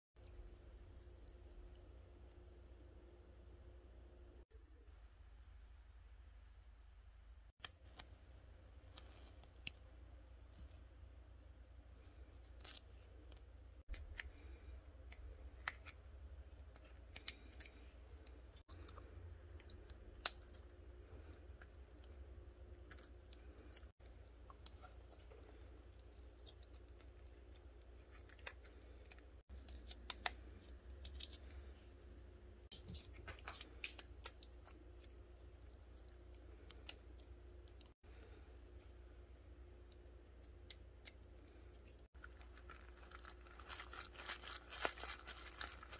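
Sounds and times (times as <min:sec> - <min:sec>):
low steady hum: 0:00.2 - 0:45.9
plastic tape crinkling and clicking: 0:15.1 - 0:31.6, 0:40.3 - 0:45.9.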